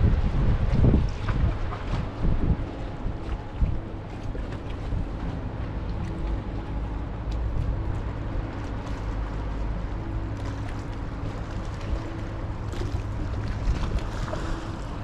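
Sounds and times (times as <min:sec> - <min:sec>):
wind on microphone: 0:00.0 - 0:08.8
ferry engines rumbling: 0:00.0 - 0:15.0
water noise: 0:00.0 - 0:15.0.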